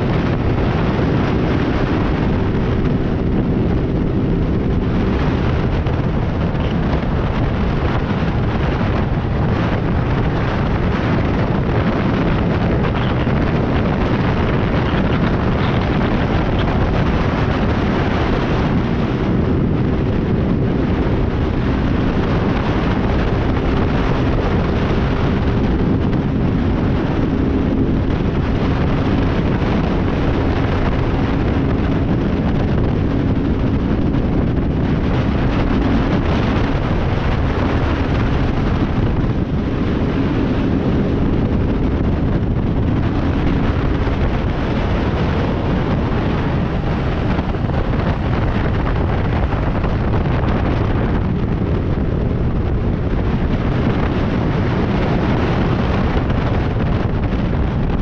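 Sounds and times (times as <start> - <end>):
motorcycle engine drone: 0.0 - 58.0
wind buffeting on microphone: 0.0 - 58.0.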